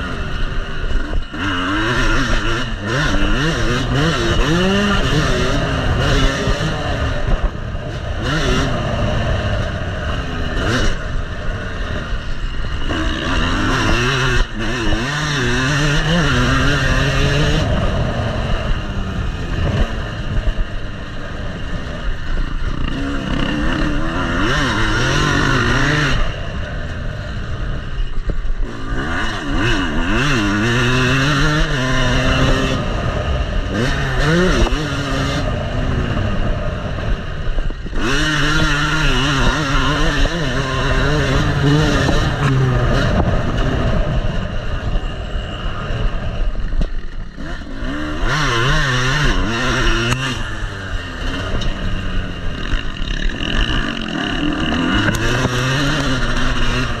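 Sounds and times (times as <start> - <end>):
motocross bike engine revving: 0.0 - 57.0
wind rush on microphone: 32.0 - 47.5.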